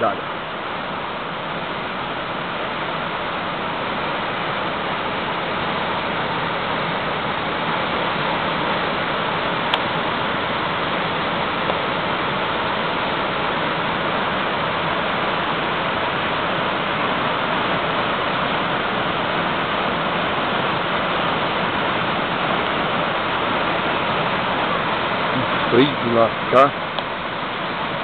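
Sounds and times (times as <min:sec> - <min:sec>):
waterfall rushing onto rock: 0:00.0 - 0:28.0.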